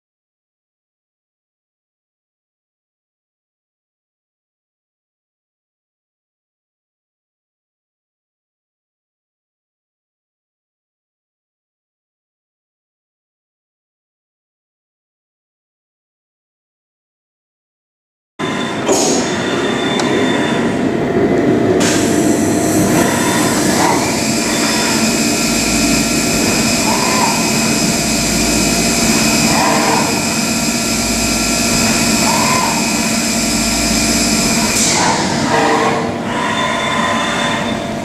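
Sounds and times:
milling machine cutting: 0:18.4 - 0:38.0
steady high whine: 0:18.4 - 0:38.0.

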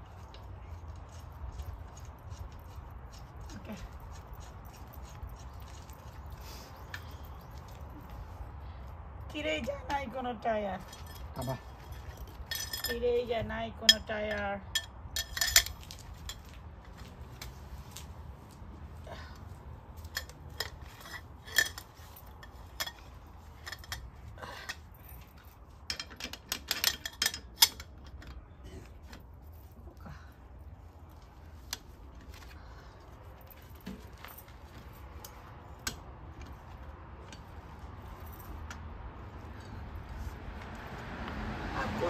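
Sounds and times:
metal tools clinking: 0:10.8 - 0:13.2, 0:13.8 - 0:17.1, 0:20.0 - 0:28.4.

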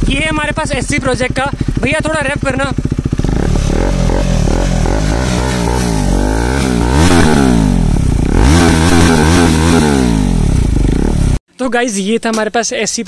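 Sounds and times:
motorcycle engine revving: 0:00.0 - 0:11.4.

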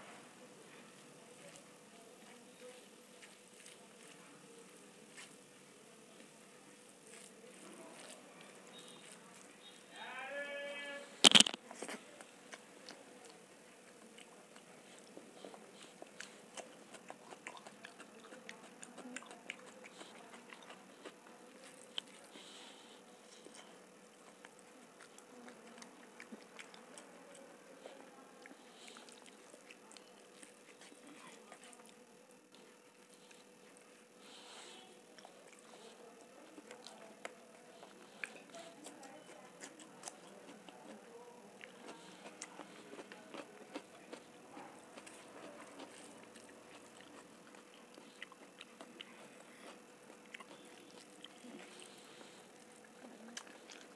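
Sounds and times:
wet chewing and mouth clicks: 0:11.2 - 0:22.7, 0:23.4 - 0:53.9.

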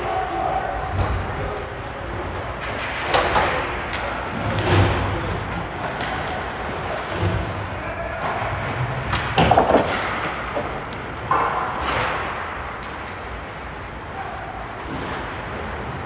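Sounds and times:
hockey sticks and skates on ice: 0:02.1 - 0:16.0
players thudding against boards: 0:02.6 - 0:12.7.

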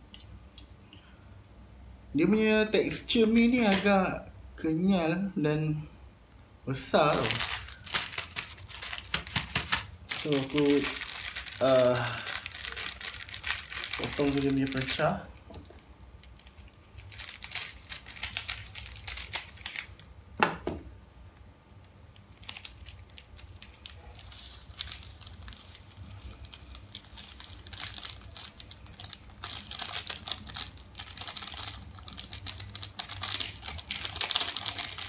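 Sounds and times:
plastic sachets crinkling: 0:06.8 - 0:20.0, 0:22.2 - 0:35.0.

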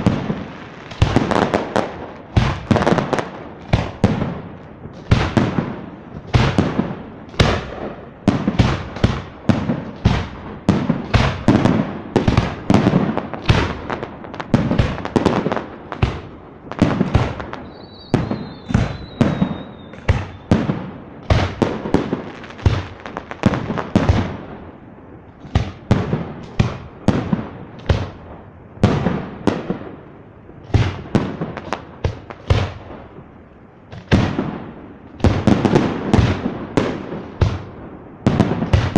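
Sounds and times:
fireworks bursting with sharp bangs: 0:00.0 - 0:38.9
thin high whistle: 0:17.6 - 0:20.5.

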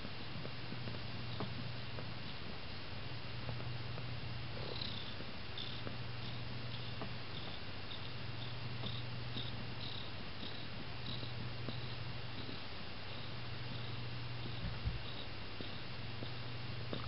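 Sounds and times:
cat purring: 0:03.4 - 0:17.0.

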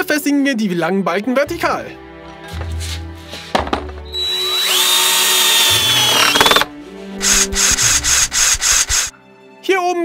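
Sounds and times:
cordless drill driving a screw: 0:04.1 - 0:09.1
rhythmic scraping: 0:06.2 - 0:09.1.

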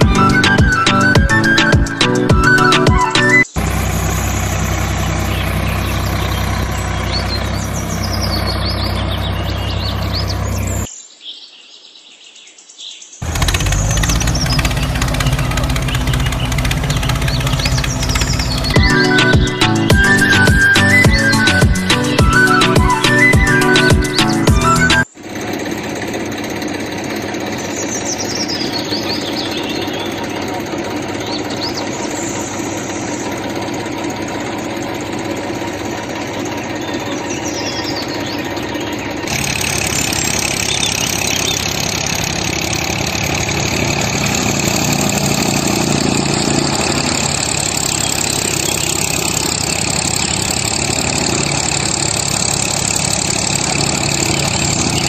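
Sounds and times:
motor running: 0:00.0 - 0:10.9, 0:13.2 - 0:55.0.

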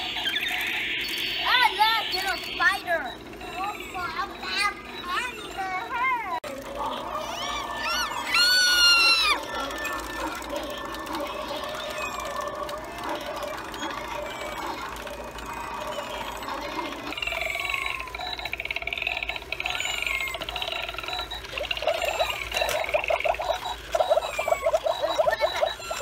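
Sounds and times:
squeaky repeated pulses: 0:00.0 - 0:26.0
warbling high chirp: 0:15.9 - 0:26.0.

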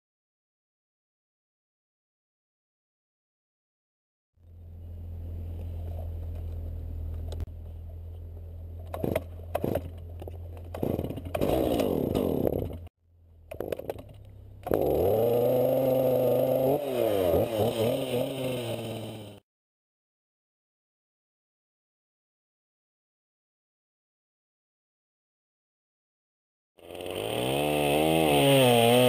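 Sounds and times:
chainsaw idling and revving: 0:08.9 - 0:19.4, 0:26.8 - 0:29.0.

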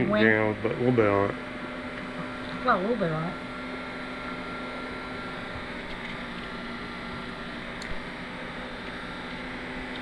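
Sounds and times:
faint low hum: 0:00.0 - 0:10.0
small click: 0:07.8 - 0:08.0.

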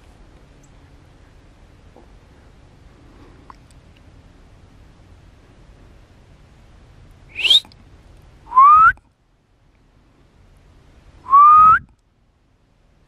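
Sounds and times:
short rising whistles: 0:07.3 - 0:07.8, 0:08.5 - 0:09.0, 0:11.3 - 0:11.9.

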